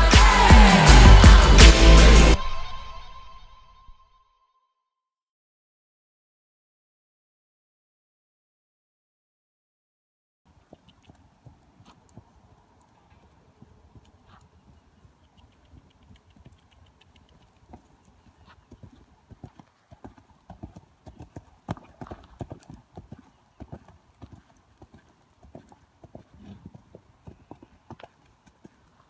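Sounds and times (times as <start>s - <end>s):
horse hoofbeats on dirt: 10.5s - 29.0s.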